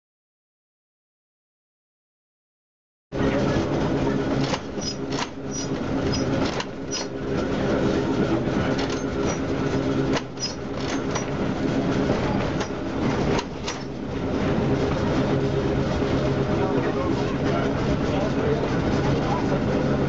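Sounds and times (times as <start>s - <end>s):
trolley motors humming: 3.1s - 20.0s
wheels clicking and knocking: 4.3s - 7.9s, 8.5s - 15.3s
high squeaks: 4.8s - 7.1s, 10.3s - 11.3s.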